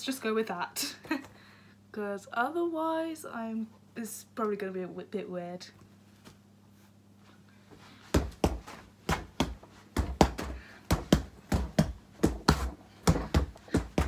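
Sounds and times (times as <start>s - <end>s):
fists thudding on punch bag: 8.1s - 14.0s.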